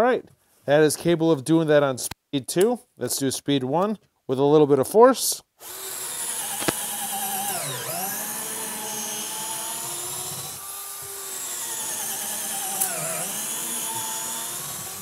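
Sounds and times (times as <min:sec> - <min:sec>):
cordless drill boring into wood: 0:05.6 - 0:15.0.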